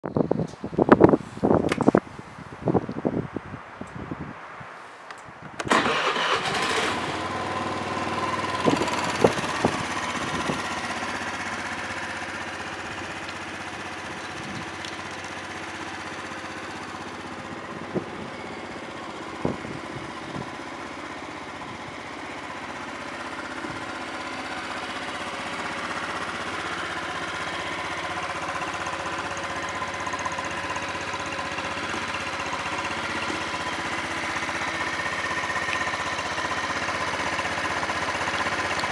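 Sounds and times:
electric starter: 5.6s - 11.0s
scooter engine idling: 5.6s - 38.9s.

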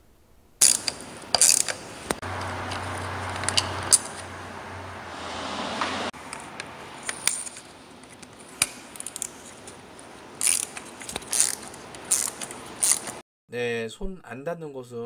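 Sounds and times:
metallic clicks of socket and ratchet: 0.6s - 1.8s, 10.4s - 13.1s
ratchet clicking: 0.6s - 1.8s, 10.4s - 13.2s.

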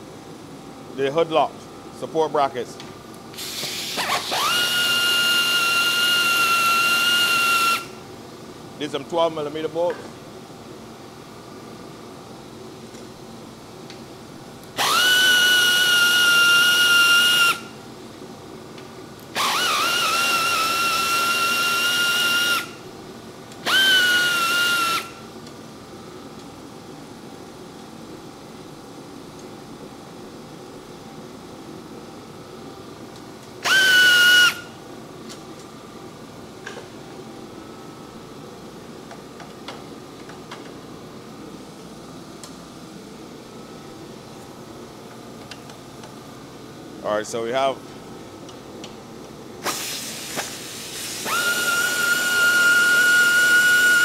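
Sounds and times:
steady background hum: 0.0s - 54.0s
power driver whining: 3.9s - 8.0s, 14.7s - 17.7s, 19.2s - 22.8s, 23.6s - 25.2s, 33.6s - 34.8s, 51.2s - 54.0s.

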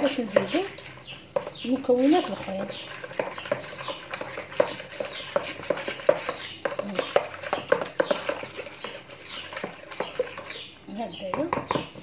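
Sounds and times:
spoon stirring thick batter: 0.0s - 12.0s
spoon tapping plastic bowl: 11.3s - 12.0s.

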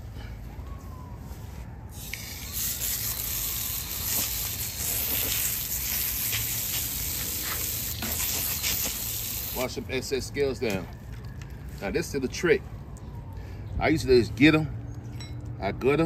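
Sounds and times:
water spraying from hose nozzle: 2.0s - 9.8s.

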